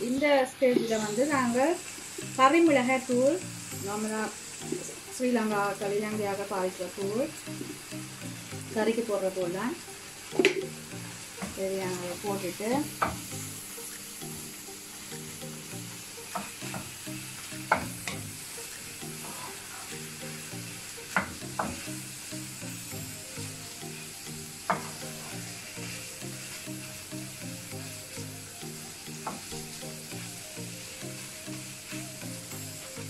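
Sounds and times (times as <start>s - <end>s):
food sizzling in a frying pan: 0.0s - 33.0s
wooden spatula knocking on pan: 24.7s - 25.0s.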